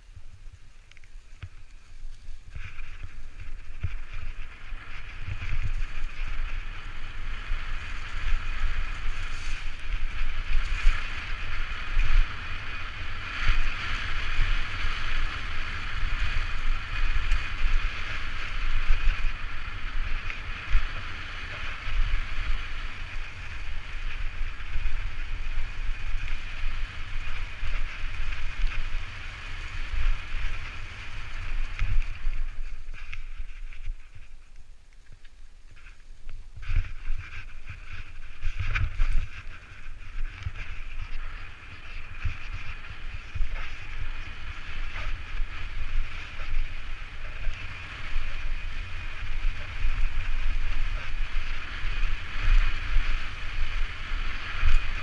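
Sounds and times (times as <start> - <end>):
bike rattling: 0.0 - 55.0
wind buffeting microphone: 0.0 - 55.0
tyres rolling over leaves and dirt: 0.5 - 55.0.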